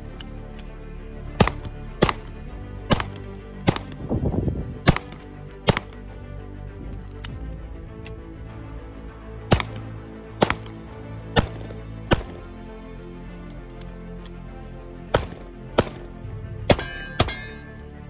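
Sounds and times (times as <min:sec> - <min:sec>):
background music: 0:00.0 - 0:18.0
pistol shots: 0:01.4 - 0:02.3, 0:02.9 - 0:03.9, 0:04.9 - 0:05.9, 0:09.5 - 0:10.7, 0:11.4 - 0:12.4, 0:15.2 - 0:16.1, 0:16.7 - 0:17.7.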